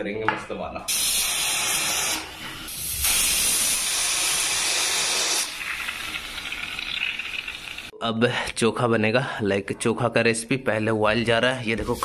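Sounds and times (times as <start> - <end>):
pressure cooker steam hiss: 0.9 - 7.9.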